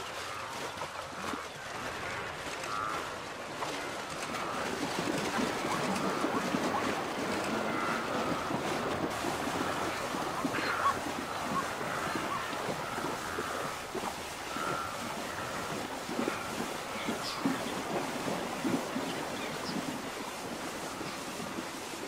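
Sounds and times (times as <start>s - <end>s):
animals splashing through river: 0.0s - 22.0s.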